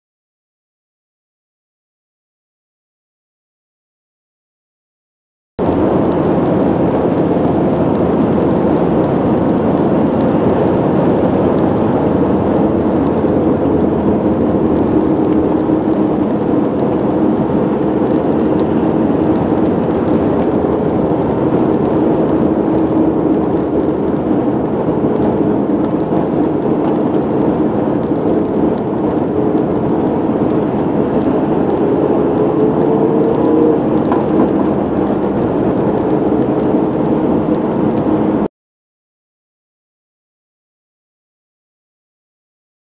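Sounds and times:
engine and tyre drone: 0:05.6 - 0:38.5.

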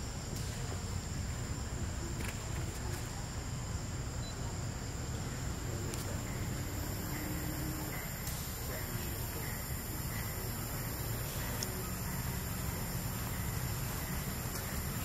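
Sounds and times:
high insect drone: 0:00.0 - 0:15.0
faint clicks: 0:11.5 - 0:11.8.

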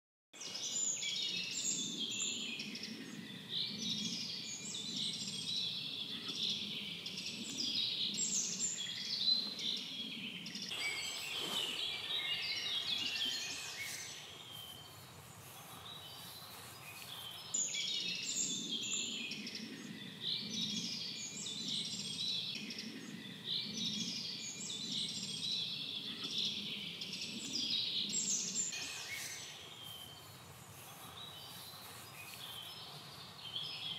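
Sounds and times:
songbirds singing: 0:00.4 - 0:33.9.

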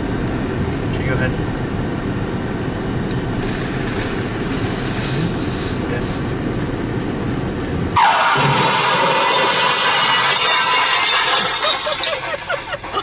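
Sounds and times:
train rolling rumble: 0:00.0 - 0:13.0
loud high screech: 0:08.0 - 0:11.6.

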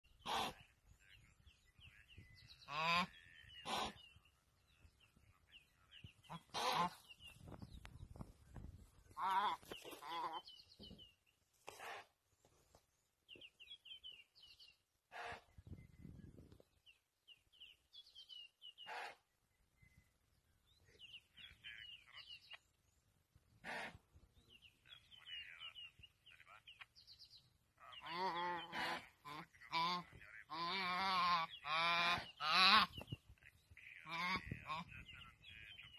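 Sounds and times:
songbird chirping: 0:00.0 - 0:35.9
antelope bleating in distress: 0:02.6 - 0:04.0, 0:06.3 - 0:07.0, 0:09.1 - 0:10.5, 0:28.0 - 0:33.0.

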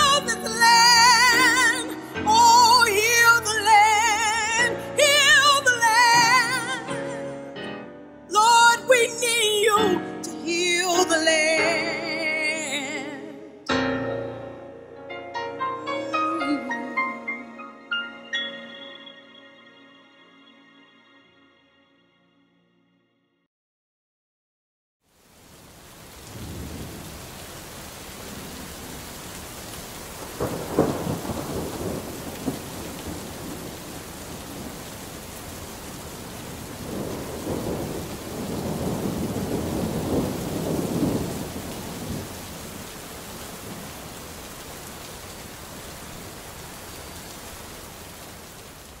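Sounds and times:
steady rain: 0:00.0 - 0:07.1, 0:25.0 - 0:49.0
thunder rumbling: 0:26.1 - 0:46.9.

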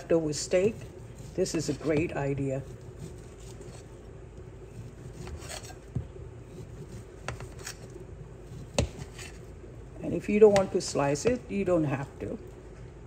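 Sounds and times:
knife slicing steak: 0:04.8 - 0:05.8.

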